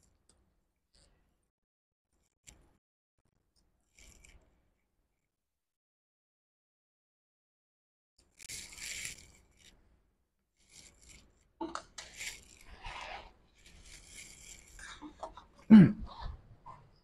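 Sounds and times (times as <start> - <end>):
rustling and scraping of small parts: 2.1 - 4.9, 8.2 - 10.0, 10.6 - 15.7.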